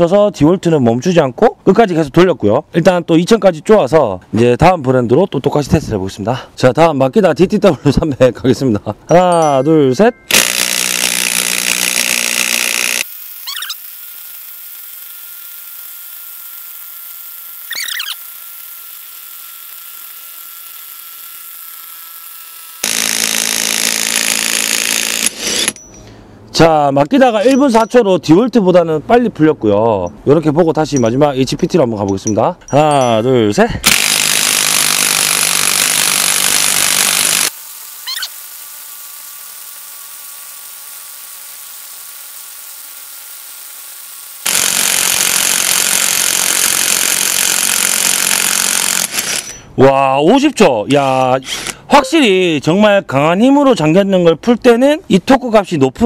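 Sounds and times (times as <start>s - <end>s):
impact wrench hammering: 10.3s - 13.1s, 22.2s - 26.0s, 33.8s - 37.6s
short warbling chirp: 13.4s - 13.8s, 17.7s - 18.2s, 38.0s - 38.3s.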